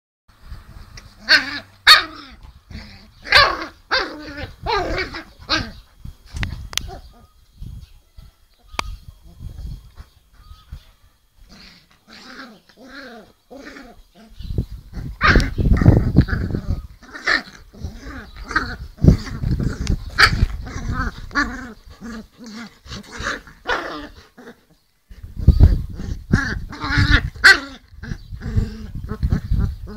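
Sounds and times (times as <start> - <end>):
puppy growling: 1.2 - 5.8, 11.5 - 29.9
dogs barking: 3.2 - 5.8.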